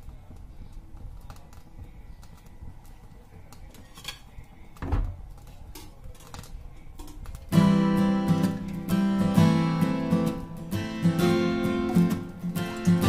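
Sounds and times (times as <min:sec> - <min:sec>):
kitchen utensils clicking and tapping: 0:03.5 - 0:04.3, 0:05.4 - 0:07.6.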